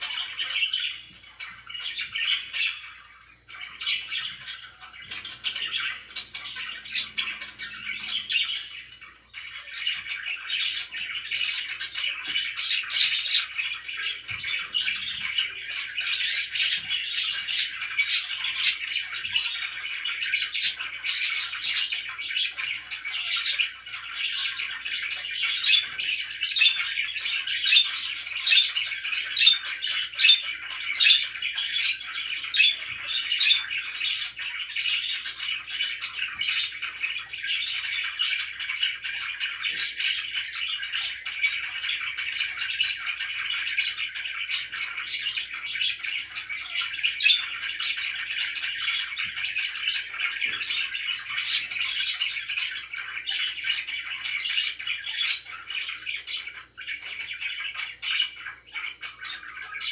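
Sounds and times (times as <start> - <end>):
budgerigars chirping and squawking: 0.0 - 59.9.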